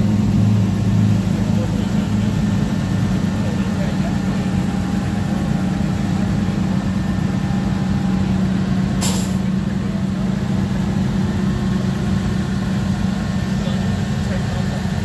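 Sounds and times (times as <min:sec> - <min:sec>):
race car engine idling: 0:00.0 - 0:15.0
sharp hiss: 0:09.0 - 0:09.4.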